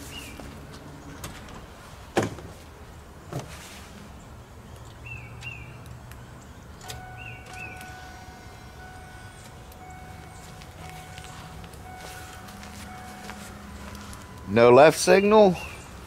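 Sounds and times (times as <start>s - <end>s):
bird chirping: 0.0s - 1.2s, 4.2s - 16.0s
sharp knocks in truck cab: 2.2s - 2.5s
high electronic tone: 7.0s - 15.7s.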